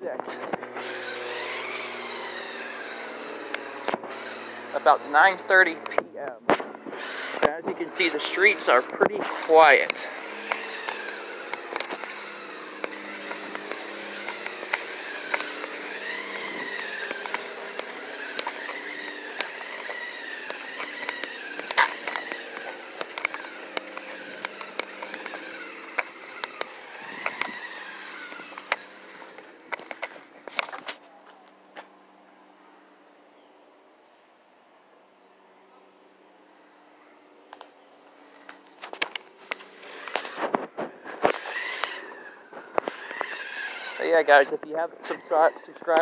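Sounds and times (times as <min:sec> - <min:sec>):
toy car motor whine: 0:00.3 - 0:06.0, 0:06.8 - 0:31.0, 0:37.6 - 0:46.0
sharp clicks: 0:09.8 - 0:30.8
tyre hiss on pavement: 0:37.6 - 0:44.5.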